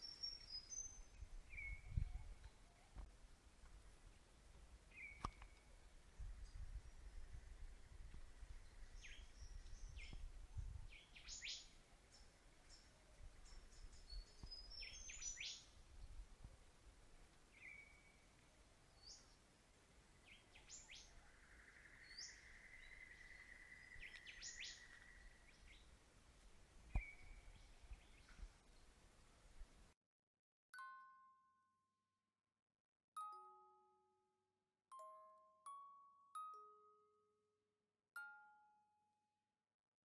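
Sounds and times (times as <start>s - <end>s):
faint birds chirping: 0.0s - 29.8s.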